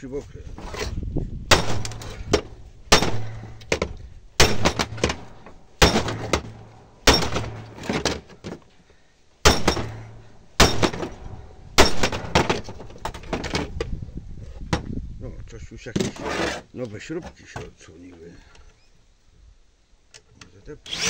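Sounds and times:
hammer striking metal column: 0:01.5 - 0:08.2, 0:09.5 - 0:13.2.

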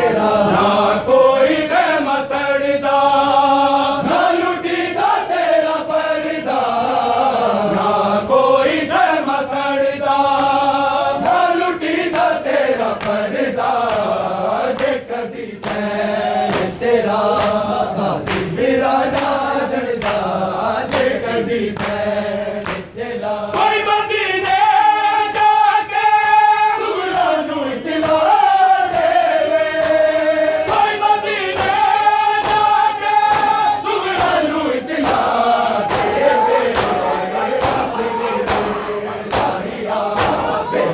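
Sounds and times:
lead reciter chanting: 0:00.0 - 0:40.9
men chanting in unison: 0:00.0 - 0:40.9
hand slaps on bare chests: 0:13.0 - 0:15.0, 0:15.6 - 0:15.9, 0:16.5 - 0:20.3, 0:21.8 - 0:22.9, 0:28.0 - 0:40.7.

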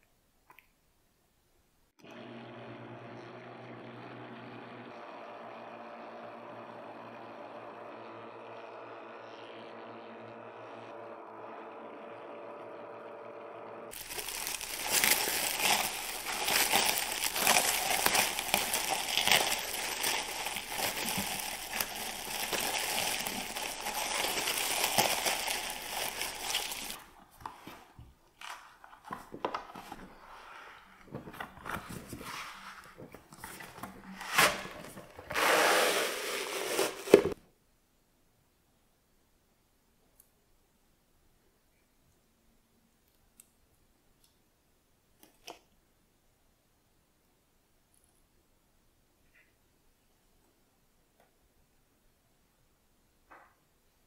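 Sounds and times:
cling film crinkling: 0:13.9 - 0:30.3.

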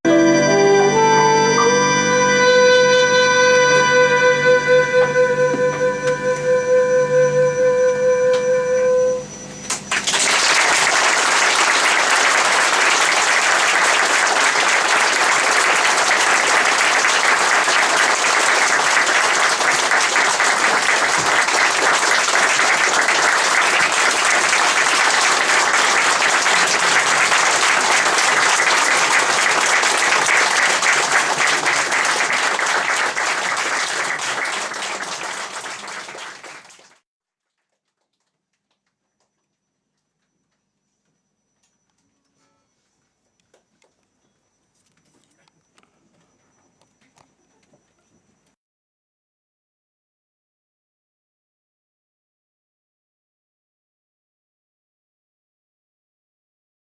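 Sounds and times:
instrument held note: 0:00.1 - 0:09.6
audience applauding: 0:09.7 - 0:37.0.

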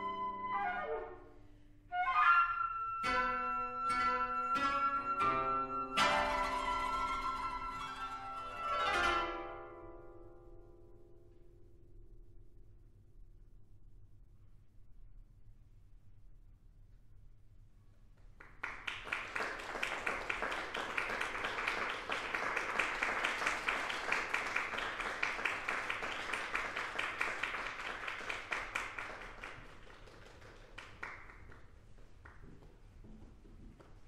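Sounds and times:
audience applause: 0:18.4 - 0:32.4.

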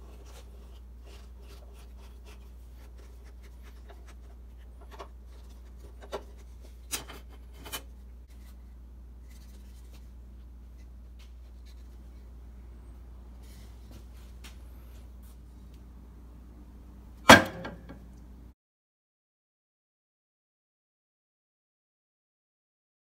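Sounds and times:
scratching on wooden handle: 0:00.0 - 0:08.6
steady low hum: 0:00.0 - 0:18.5.

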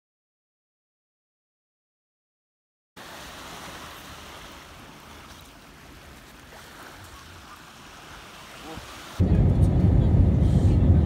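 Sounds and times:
small waves washing onto shore: 0:03.0 - 0:11.0
wind rumbling on microphone: 0:09.0 - 0:11.0.

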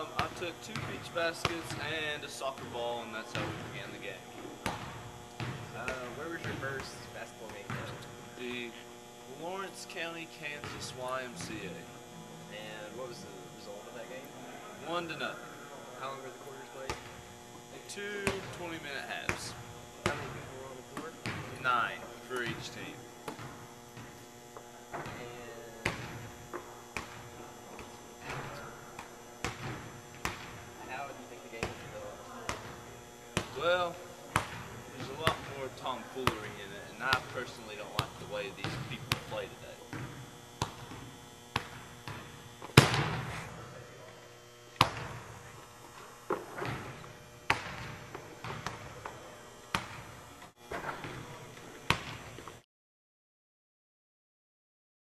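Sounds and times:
basketballs bouncing on hardwood: 0:00.0 - 0:08.5, 0:16.9 - 0:30.8, 0:31.5 - 0:43.6, 0:44.8 - 0:45.4, 0:46.3 - 0:52.5
electrical hum: 0:00.0 - 0:52.6.

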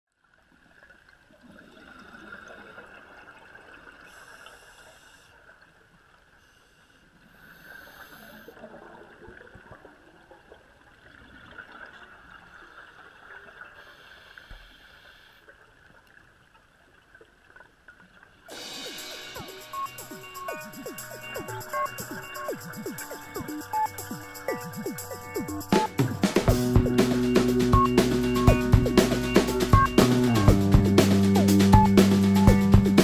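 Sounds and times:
muffled underwater hiss: 0:03.9 - 0:05.7, 0:06.3 - 0:08.7, 0:13.6 - 0:15.7, 0:18.5 - 0:28.3
scuba regulator breathing: 0:06.6 - 0:08.5
bubbling hiss: 0:18.5 - 0:27.4.

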